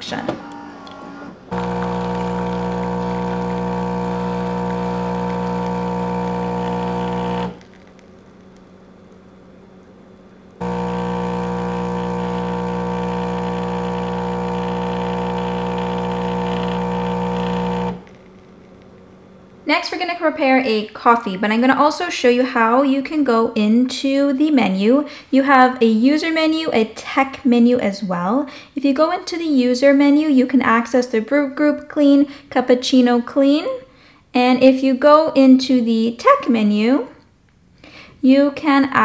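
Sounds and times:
espresso machine pump humming: 0.4s - 7.7s, 10.6s - 18.2s.

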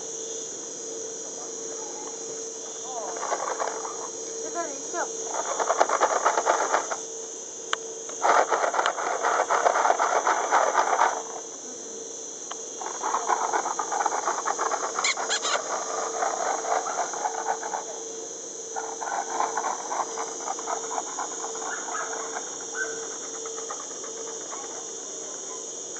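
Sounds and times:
high-pitched insect drone: 0.0s - 25.9s
loud crackling rustle: 2.8s - 4.6s, 8.1s - 11.5s, 12.7s - 18.0s, 18.7s - 25.5s.

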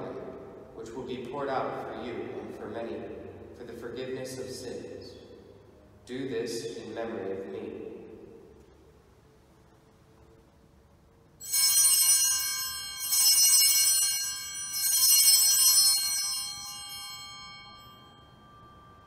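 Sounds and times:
altar bells chiming: 11.4s - 19.0s.

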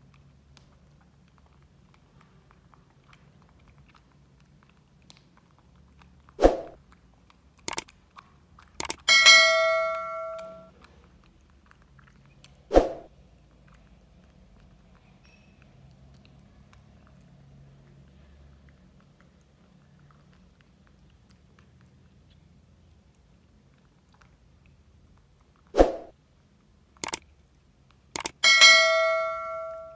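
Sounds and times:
sharp clicks: 7.6s - 9.3s, 27.0s - 27.3s, 28.1s - 28.4s
bell-like ding: 9.1s - 10.7s, 28.4s - 29.9s.

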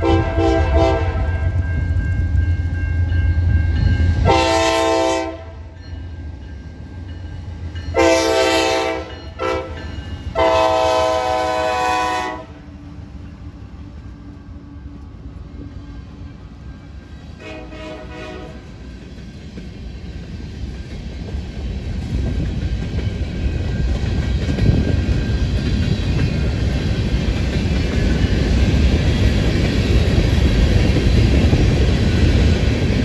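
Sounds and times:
locomotive air horn blasts: 0.0s - 1.5s, 4.2s - 5.6s, 8.0s - 12.6s, 17.4s - 18.7s
locomotive rumbling past: 0.0s - 33.0s
train wheels rolling over rails: 12.7s - 33.0s.

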